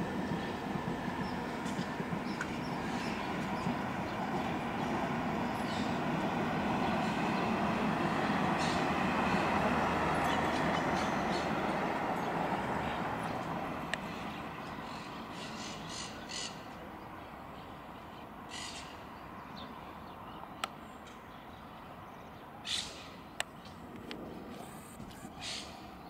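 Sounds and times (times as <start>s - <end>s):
jet airliner passing overhead: 0.0s - 15.8s, 22.6s - 26.0s
harsh bird calls: 2.2s - 7.8s, 8.4s - 9.6s, 18.5s - 19.1s, 22.6s - 26.0s.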